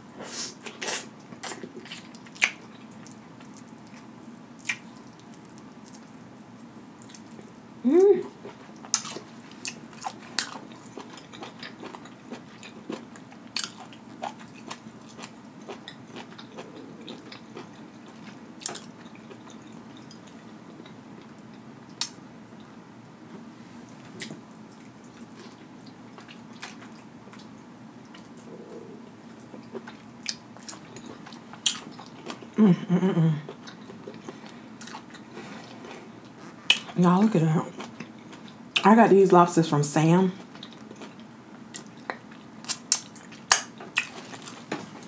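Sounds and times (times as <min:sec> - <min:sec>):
person chewing: 0:00.4 - 0:07.6, 0:08.3 - 0:22.7, 0:24.2 - 0:37.0, 0:37.8 - 0:38.8, 0:40.4 - 0:45.0
person humming: 0:07.8 - 0:08.3
lip-smacks and clicks: 0:41.8 - 0:44.2.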